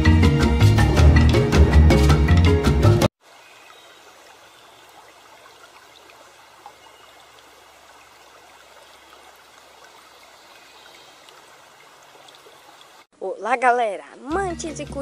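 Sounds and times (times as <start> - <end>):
running water rushing: 3.2 - 13.1.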